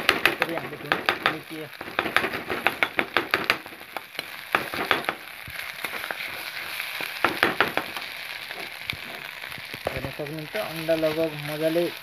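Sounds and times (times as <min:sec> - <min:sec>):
spatula knocking and scraping pan: 0:00.0 - 0:06.2, 0:07.0 - 0:10.0
egg sizzling in a wok: 0:00.0 - 0:12.0.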